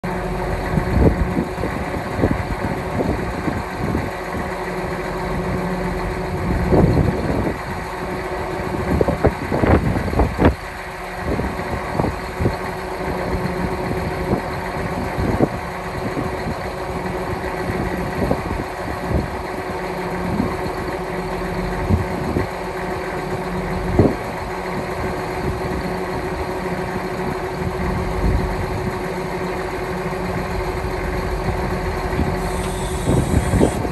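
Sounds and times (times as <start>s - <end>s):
engine idling: 0.0s - 33.9s
hydraulic folding: 32.2s - 33.9s.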